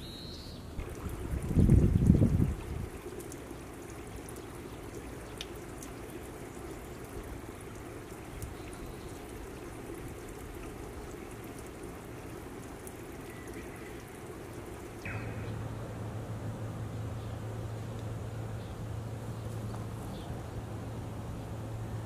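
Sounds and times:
steady low hum: 0.5 - 22.0
stream trickling over stones: 0.8 - 15.5
small ticks of water: 0.8 - 15.6, 17.9 - 18.2, 19.4 - 20.3.

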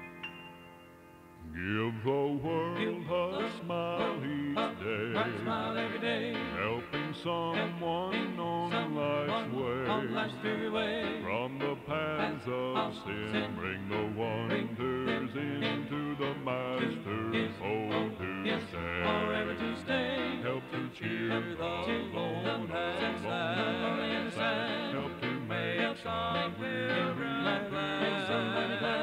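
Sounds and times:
gospel song with plucked guitar: 1.4 - 29.0.

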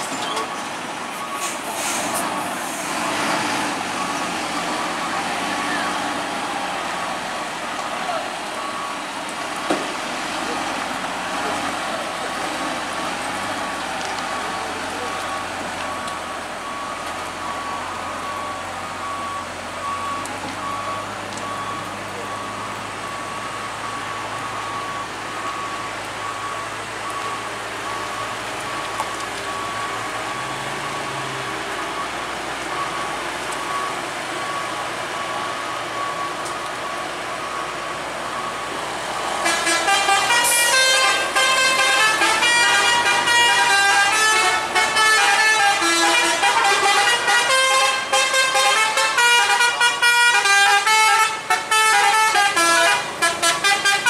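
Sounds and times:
heavy truck engine: 0.0 - 54.0
multi-tone vehicle horn melody: 39.4 - 54.0.

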